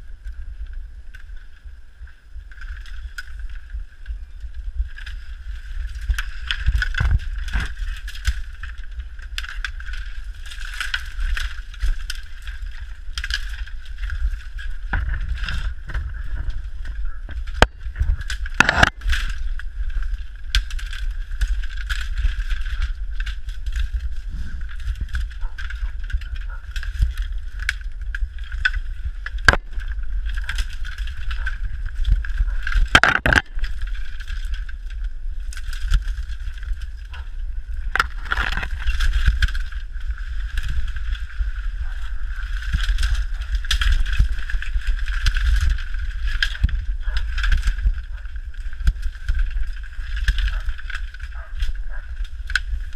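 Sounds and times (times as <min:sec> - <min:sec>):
bamboo stalks scraping: 0:01.1 - 0:52.9
camera handling rumble: 0:04.8 - 0:52.9
sharp knocks of stalks: 0:28.6 - 0:34.6.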